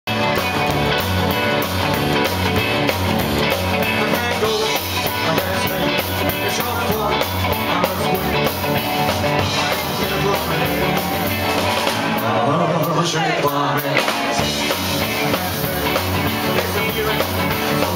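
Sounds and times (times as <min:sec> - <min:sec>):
bass line: 0:00.1 - 0:17.9
drum kit: 0:00.1 - 0:17.9
electric guitar: 0:00.1 - 0:17.9
male lead singer singing: 0:03.8 - 0:17.9.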